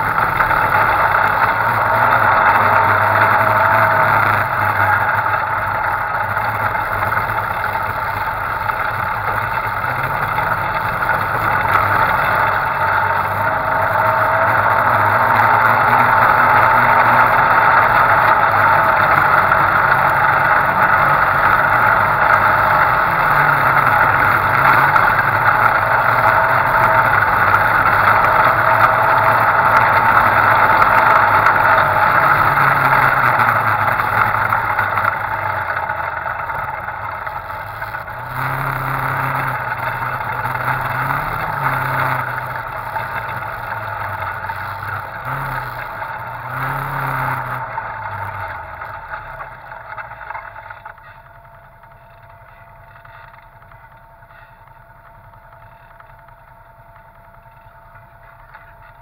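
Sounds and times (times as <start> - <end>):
off-road vehicle engine: 0.0 - 59.0
road noise: 0.0 - 59.0.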